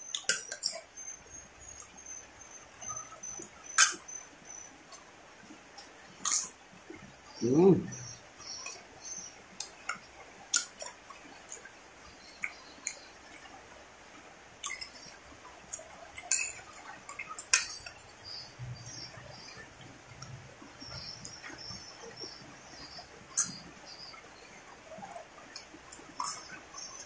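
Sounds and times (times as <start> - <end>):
close-up chewing: 14.6 - 27.0.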